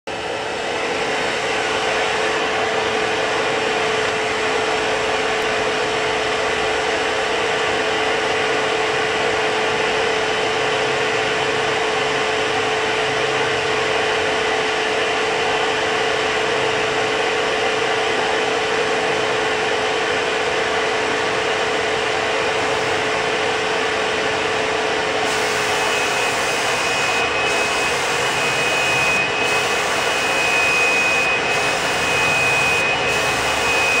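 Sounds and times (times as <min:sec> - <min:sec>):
turbine blower hiss: 0:00.2 - 0:34.0
spray gun hiss and whistle: 0:25.2 - 0:34.0.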